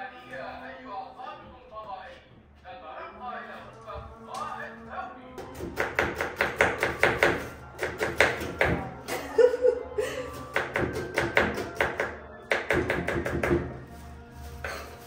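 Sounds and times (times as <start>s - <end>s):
background music: 0.0s - 15.0s
knife chopping on cutting board: 5.4s - 8.9s, 10.5s - 13.8s.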